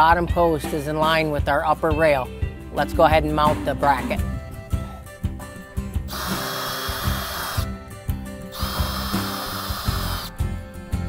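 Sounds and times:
cordless drill driving screws: 0:06.1 - 0:07.7, 0:08.5 - 0:10.4.

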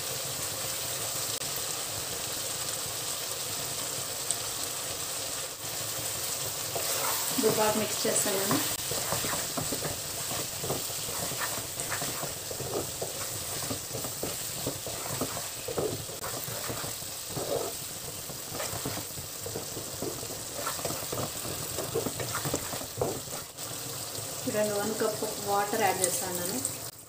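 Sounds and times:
curry sizzling: 0:00.0 - 0:27.0
spatula scraping a pan: 0:06.7 - 0:23.6.

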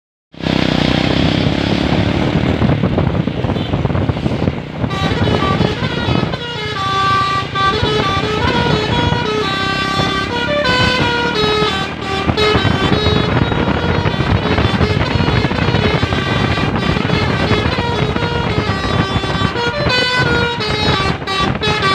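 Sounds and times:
bus engine: 0:00.3 - 0:21.9
road noise: 0:00.3 - 0:21.9
musical air horn playing a tune: 0:04.9 - 0:21.9.

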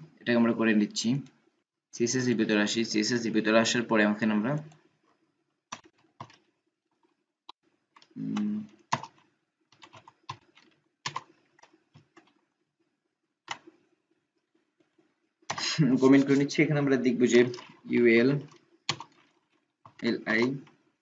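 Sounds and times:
keyboard keystrokes: 0:08.9 - 0:09.2, 0:09.8 - 0:12.4, 0:18.4 - 0:20.6.

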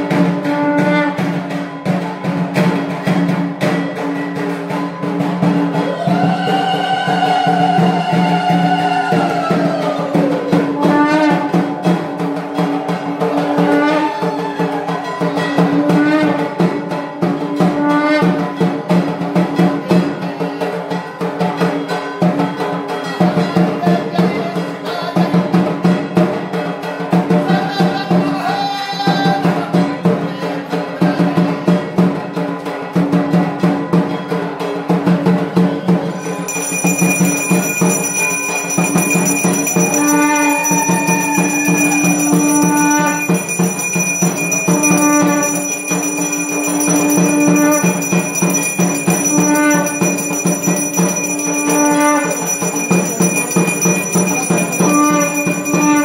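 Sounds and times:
fast drumming: 0:36.0 - 0:56.0
clanging bells: 0:36.2 - 0:56.0
melody line: 0:36.2 - 0:56.0
steady high ringing: 0:36.2 - 0:56.0.

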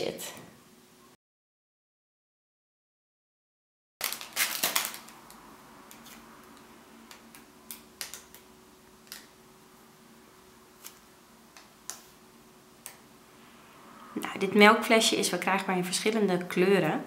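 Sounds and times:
faint steady hum: 0:04.0 - 0:17.0.

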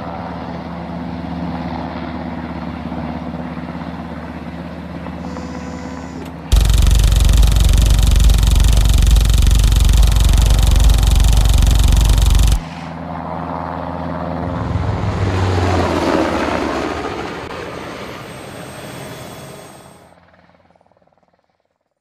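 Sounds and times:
helicopter rotor noise: 0:06.5 - 0:12.7.

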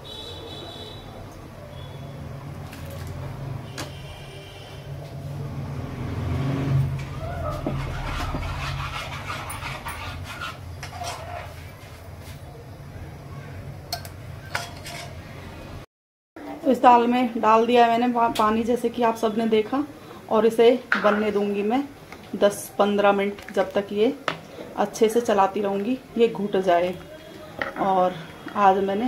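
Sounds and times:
dog whining and barking: 0:07.1 - 0:08.0.

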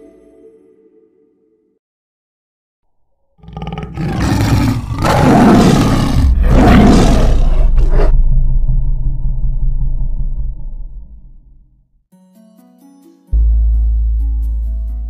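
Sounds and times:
tiger roaring: 0:03.4 - 0:08.2
low rumble: 0:06.2 - 0:11.8.

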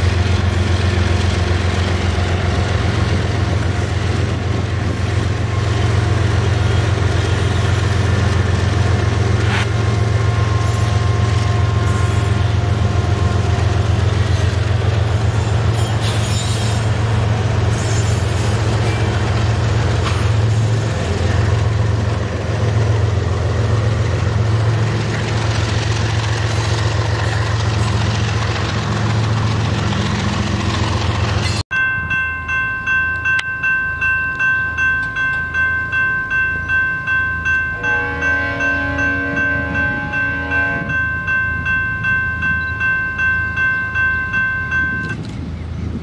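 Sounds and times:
train wheels rolling on rails: 0:00.0 - 0:31.6
diesel locomotive engine drone: 0:00.0 - 0:46.0.

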